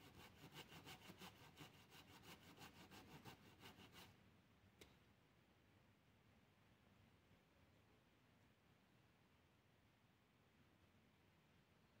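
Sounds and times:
blade scraping wood: 0:00.0 - 0:04.1.

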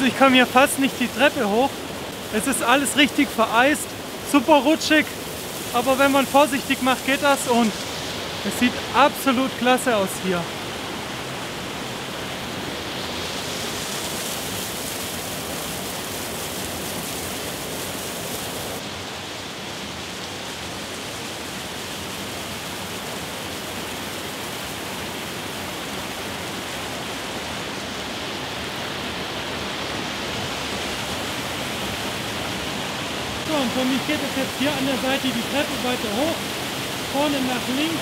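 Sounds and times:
waterfall rushing: 0:00.0 - 0:38.0.

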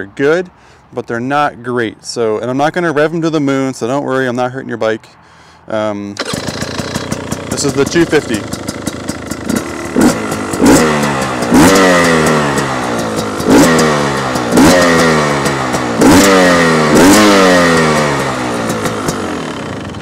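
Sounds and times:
two-stroke engine revving: 0:06.2 - 0:20.0.

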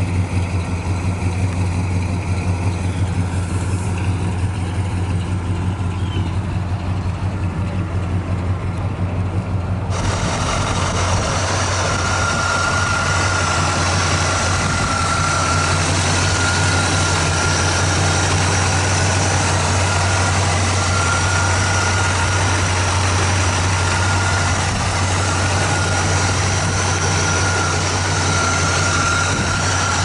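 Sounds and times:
car engine idling: 0:00.0 - 0:30.0
faint high whine: 0:10.0 - 0:30.0.

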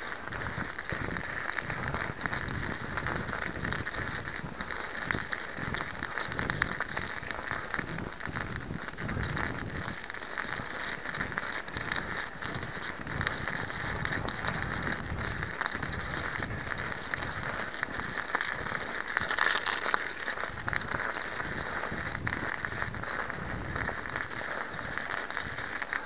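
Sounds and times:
snow crunching under bicycle tyres: 0:00.0 - 0:26.0
wind rumble on microphone: 0:00.0 - 0:26.0.

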